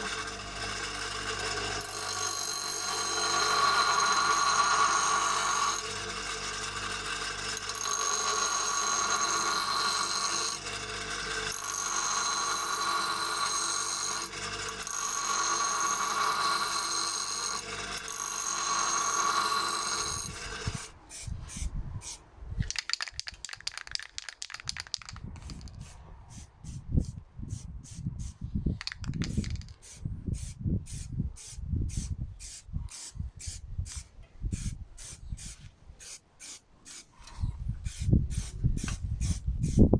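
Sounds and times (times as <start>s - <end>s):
bench grinder whine: 0.0s - 21.0s
metal grinding on wheel: 0.0s - 21.0s
wind on microphone: 20.2s - 22.7s, 24.6s - 35.7s, 37.3s - 39.9s
spray-paint can hissing: 20.7s - 37.1s, 37.8s - 39.9s.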